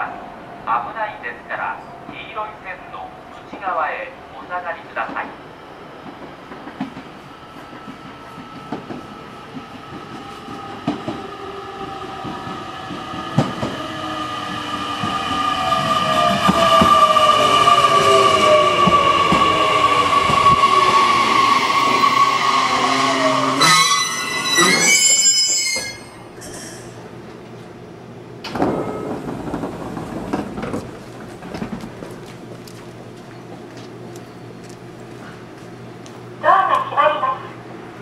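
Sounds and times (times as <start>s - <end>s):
brakes squealing: 21.3s - 27.0s
wheels clicking over rail joints: 28.4s - 33.0s.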